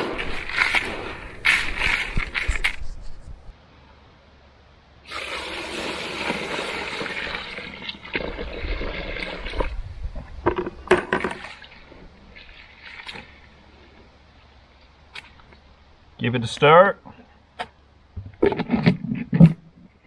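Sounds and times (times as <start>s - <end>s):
water pouring into bucket: 5.1s - 9.8s
plastic bucket knocks and rattles: 10.4s - 11.5s.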